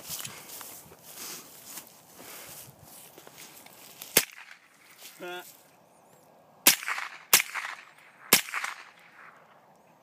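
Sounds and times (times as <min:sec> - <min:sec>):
rifle shots with echo: 0:06.6 - 0:09.4.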